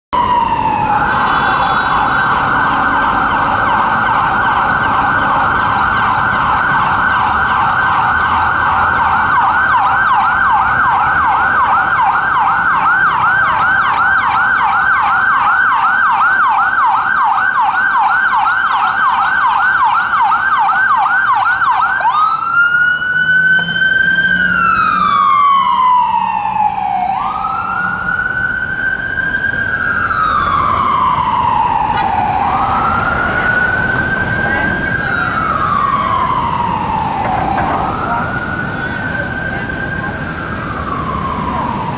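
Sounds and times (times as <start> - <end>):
electronic siren yelp and wail: 0.2 - 41.9
faint traffic noise: 28.8 - 41.9.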